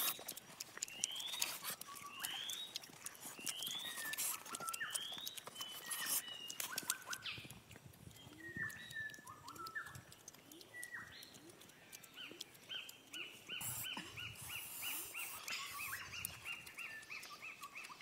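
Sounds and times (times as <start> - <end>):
animal chirping calls: 8.2 - 18.0.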